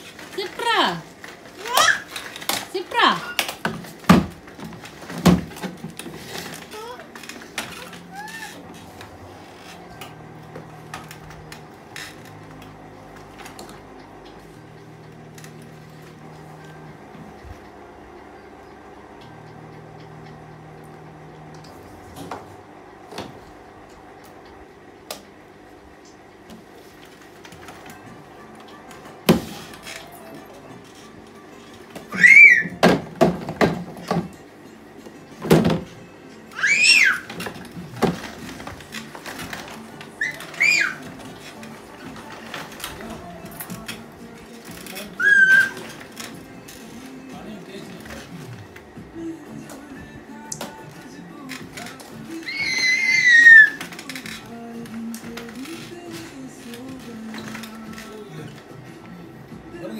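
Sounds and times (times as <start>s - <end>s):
baby squealing: 1.6s - 2.2s, 7.8s - 8.7s, 32.1s - 32.8s, 36.5s - 37.4s, 40.2s - 41.1s, 45.1s - 46.0s, 52.4s - 53.9s
steady low hum: 4.2s - 31.9s.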